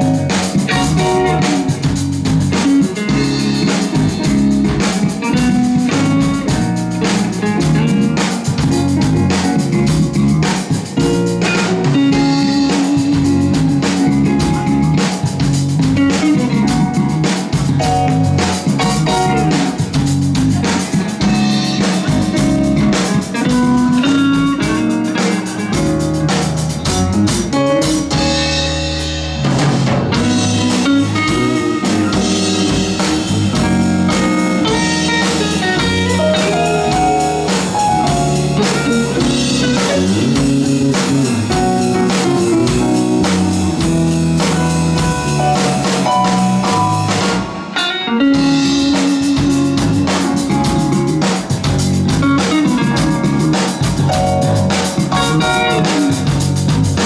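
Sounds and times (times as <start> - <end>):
electric guitar: 0.0 - 57.0
live band playing: 0.0 - 57.0.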